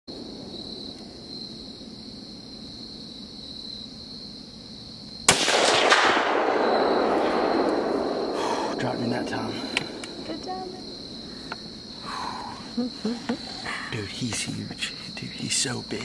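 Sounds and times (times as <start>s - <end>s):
insect buzz: 0.1s - 5.4s, 6.3s - 16.0s
gunshot with rolling echo: 5.3s - 10.3s.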